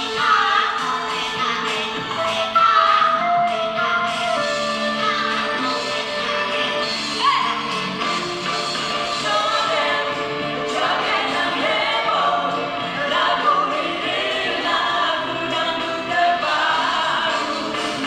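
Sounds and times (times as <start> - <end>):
live band playing upbeat song: 0.0 - 18.0
more voices singing: 8.8 - 18.0.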